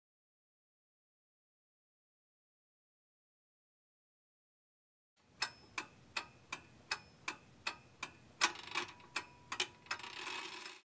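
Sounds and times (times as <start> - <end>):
metallic clock ticking: 5.3 - 10.8.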